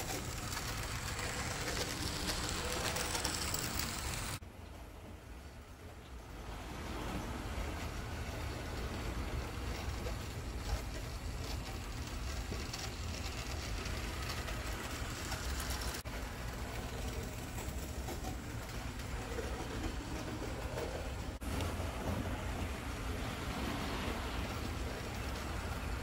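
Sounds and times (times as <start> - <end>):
small motor and gears whirring: 0.0 - 4.4, 7.0 - 22.2
wheels rattling over rails: 0.0 - 26.0.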